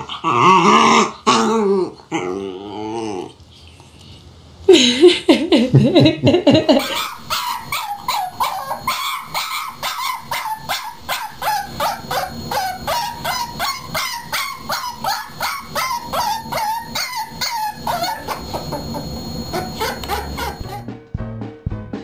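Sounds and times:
puppy yipping: 0:06.8 - 0:20.8
drawn-out dog call: 0:06.8 - 0:20.9.

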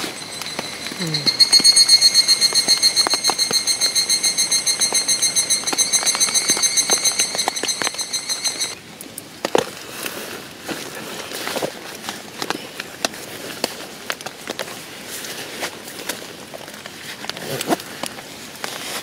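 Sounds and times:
cicada trilling: 0:00.0 - 0:08.8.

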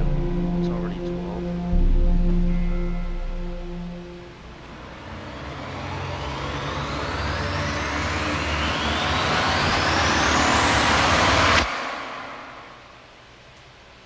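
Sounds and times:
low rumble: 0:00.0 - 0:13.1
rising swell of noise: 0:00.0 - 0:13.2.

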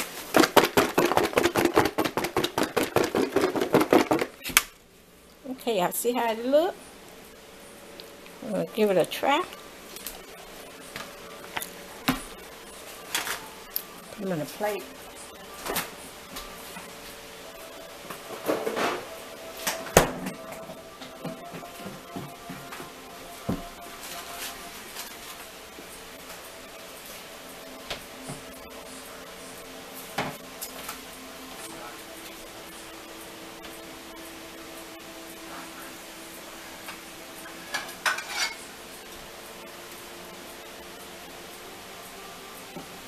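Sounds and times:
faint steady hum: 0:00.0 - 0:43.0
chicken wings shaken in plastic bowl: 0:00.3 - 0:04.4.

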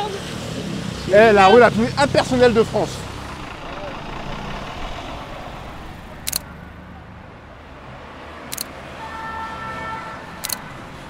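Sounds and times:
street traffic hum: 0:00.0 - 0:11.0
steady high whine: 0:01.2 - 0:07.4
camera shutter clicking: 0:06.3 - 0:06.5, 0:08.5 - 0:08.7, 0:10.4 - 0:10.6.

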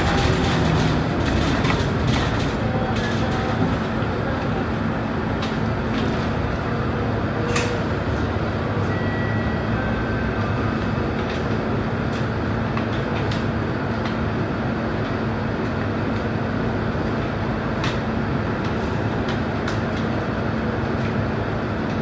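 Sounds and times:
bus body rattles: 0:00.0 - 0:08.7
bus diesel engine idling: 0:00.0 - 0:22.0.

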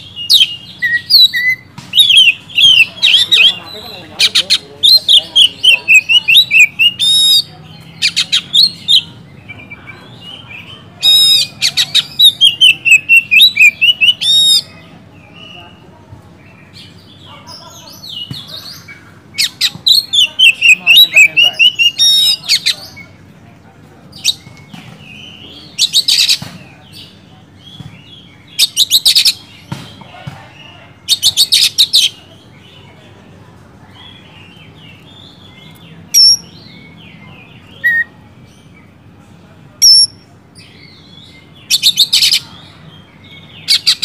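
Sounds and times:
bird singing whistled notes: 0:00.1 - 0:03.9, 0:11.0 - 0:14.7, 0:19.4 - 0:22.7, 0:35.4 - 0:38.1, 0:39.8 - 0:42.4.

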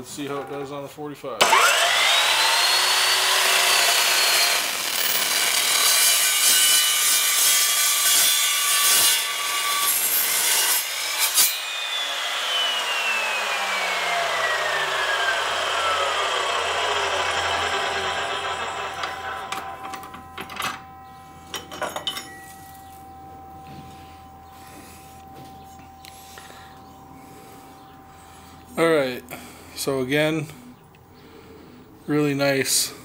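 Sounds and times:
saw blade winding down whine: 0:01.4 - 0:07.4, 0:09.2 - 0:21.7, 0:23.0 - 0:30.8
chop saw cutting metal tubing: 0:01.4 - 0:20.9.

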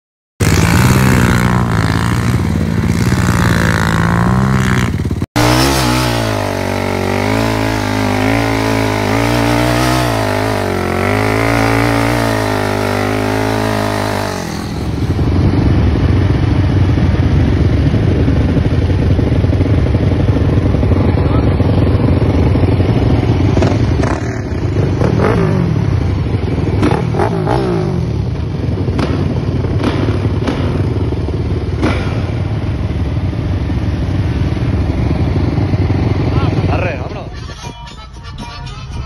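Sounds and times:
engines revving hard: 0:00.4 - 0:16.2, 0:21.1 - 0:32.6.

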